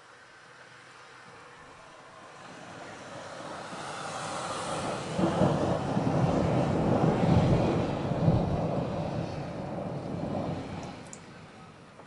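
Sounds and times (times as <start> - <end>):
thunder rumbling: 2.5 - 12.0.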